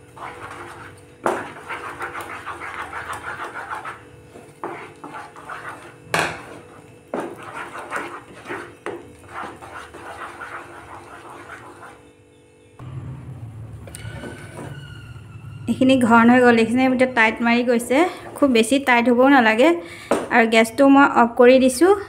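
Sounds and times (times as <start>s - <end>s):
wooden spatula stirring dough: 0.0s - 12.1s, 17.2s - 20.3s
spatula knocking on pan: 6.1s - 9.6s.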